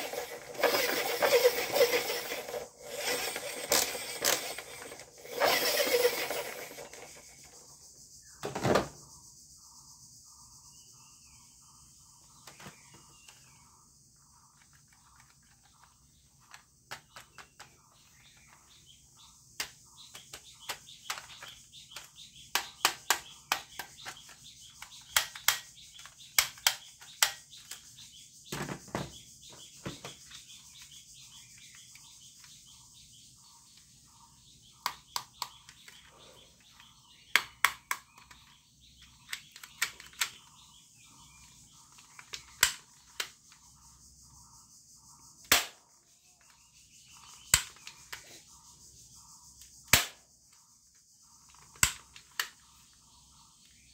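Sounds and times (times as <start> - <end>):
faint bird chirps: 0.0 - 53.9
plastic toy gun clicks: 19.6 - 27.8, 37.3 - 38.5, 45.5 - 45.8, 47.5 - 48.0, 49.9 - 50.2, 51.5 - 52.6.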